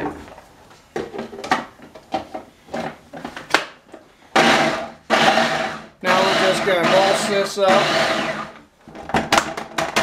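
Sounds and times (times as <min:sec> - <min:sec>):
food processor motor chopping: 0:04.4 - 0:08.6.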